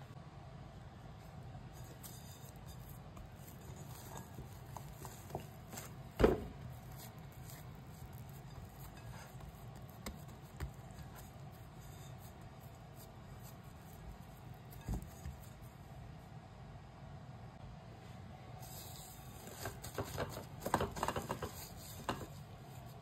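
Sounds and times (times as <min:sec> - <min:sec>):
low steady hum: 0:00.0 - 0:23.0
hand patting dough in bowl: 0:02.0 - 0:15.7, 0:19.5 - 0:23.0.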